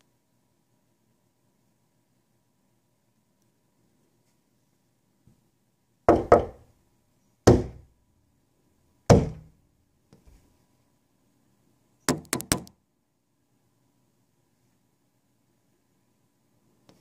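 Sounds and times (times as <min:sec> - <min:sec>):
sharp knocks on hard surface: 0:06.1 - 0:06.6, 0:07.5 - 0:07.8, 0:09.1 - 0:09.5, 0:12.1 - 0:12.7.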